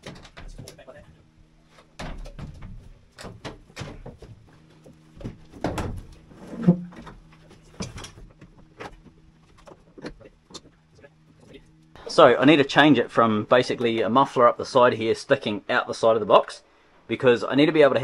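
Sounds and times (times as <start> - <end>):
generator knocking and scraping: 0.0 - 11.8.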